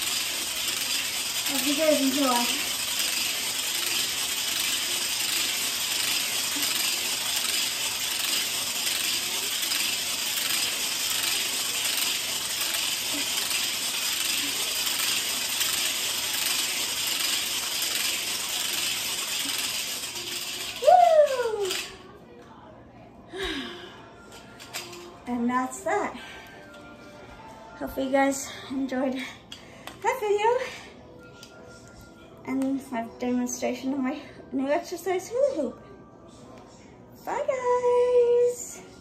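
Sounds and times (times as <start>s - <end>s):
hula hoop rattling: 0.0s - 22.0s.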